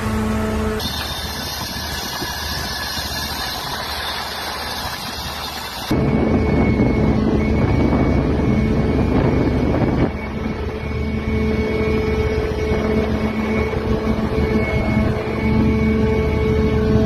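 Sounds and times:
dredger machinery droning: 0.0s - 17.0s.

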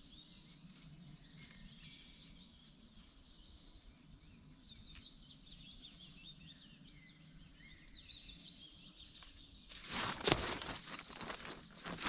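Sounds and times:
songbirds warbling: 0.0s - 12.0s
tent fabric rustling: 9.7s - 12.0s.

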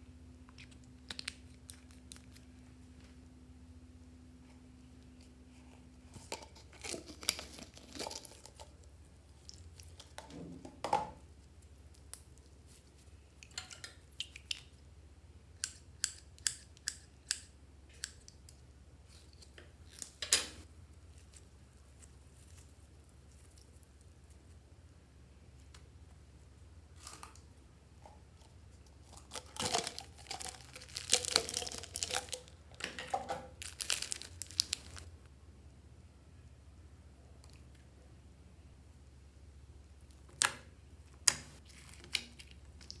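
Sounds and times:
slime clicking and crackling: 29.0s - 32.6s, 33.5s - 35.1s.

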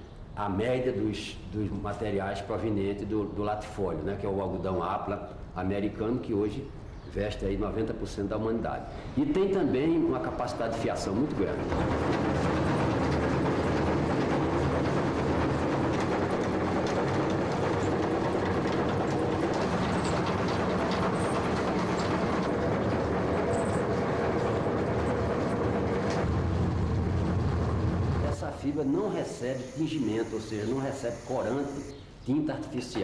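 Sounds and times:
low machine hum: 8.9s - 32.2s
machinery rattling: 9.2s - 31.9s.

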